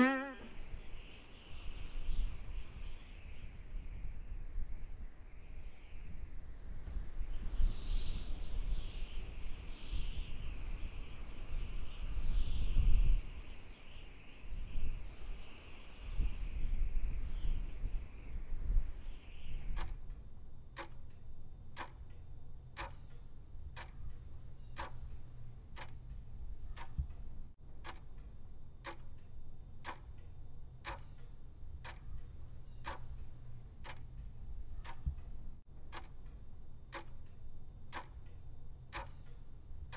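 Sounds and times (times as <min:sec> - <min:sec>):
clock ticking: 0:19.7 - 0:39.9.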